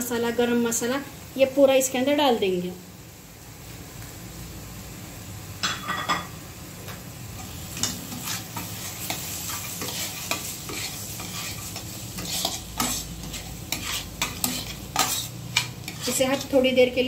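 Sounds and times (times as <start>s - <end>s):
food sizzling in pan: 0.0s - 17.0s
spatula scraping pan: 7.4s - 17.0s.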